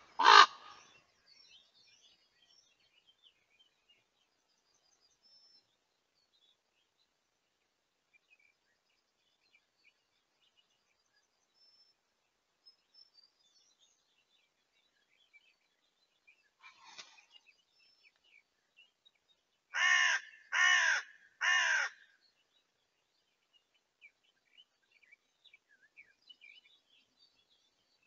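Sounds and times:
small birds chirping: 0.0 - 28.0
raven croaking: 0.1 - 0.8.

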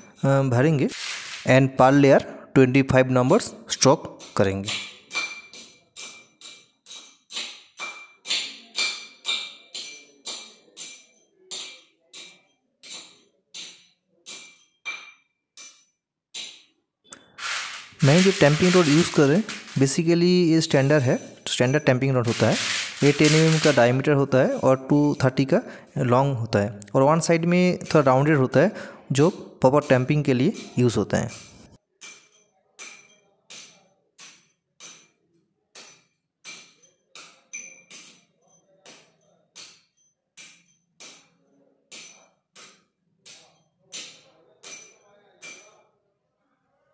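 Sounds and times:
steel rod striking stone chips: 0.9 - 1.6, 4.2 - 24.6
steel rod tamping stone chips: 0.9 - 1.6, 17.2 - 24.6.

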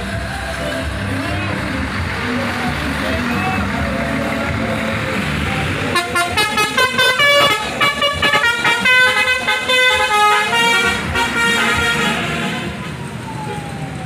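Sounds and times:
musical air horn tune: 5.9 - 12.8.

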